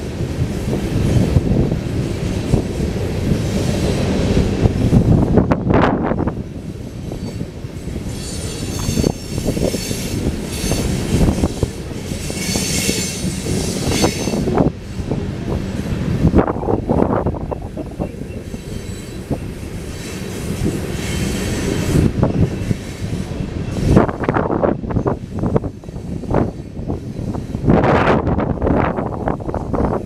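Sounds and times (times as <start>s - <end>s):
train wheels rumbling on rails: 0.0s - 30.0s
high-pitched wheel squeal: 8.1s - 14.4s, 17.5s - 19.4s.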